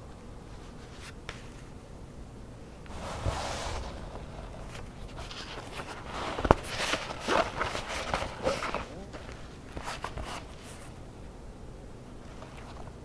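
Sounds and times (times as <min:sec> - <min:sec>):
waxed cotton and leather rustling: 0:02.9 - 0:10.7.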